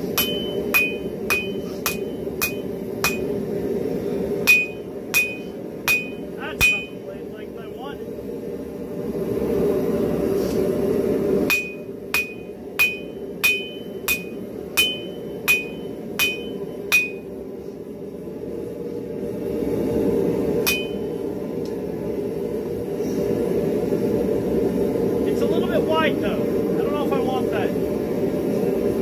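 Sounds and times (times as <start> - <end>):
hammer striking steel on anvil: 0.0 - 3.4, 4.4 - 7.0, 11.5 - 17.3, 20.6 - 21.2.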